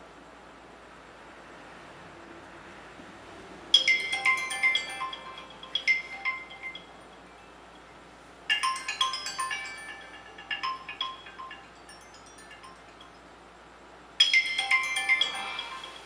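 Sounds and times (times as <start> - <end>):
mobile phone ringtone: 3.8 - 7.9, 8.5 - 13.2, 14.2 - 16.0.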